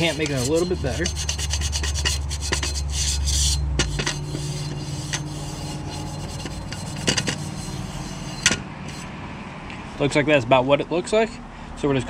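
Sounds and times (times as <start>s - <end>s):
scouring pad scrubbing metal: 0.0s - 9.1s.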